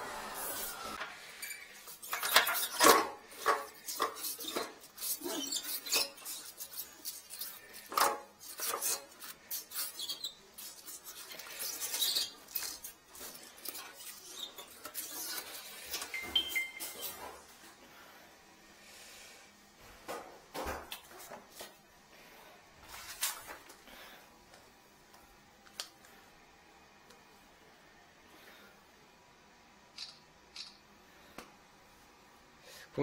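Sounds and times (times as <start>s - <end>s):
vacuum winding down: 0.0s - 1.0s
two-tone beep: 16.1s - 17.0s.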